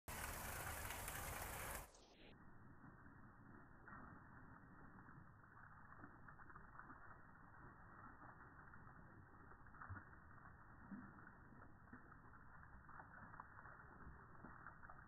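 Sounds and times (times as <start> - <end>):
water jet splashing: 0.1 - 1.9.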